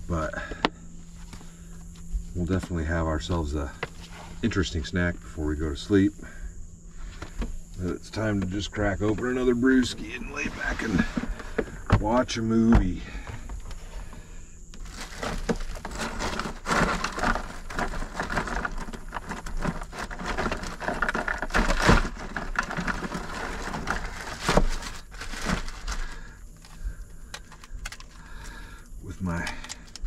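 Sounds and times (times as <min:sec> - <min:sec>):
plastic bag crinkling: 0:14.8 - 0:28.6.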